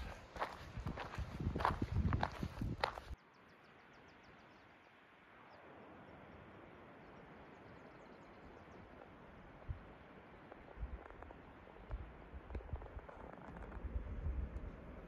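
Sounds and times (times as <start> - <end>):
soft outdoor hiss: 3.0 - 15.0.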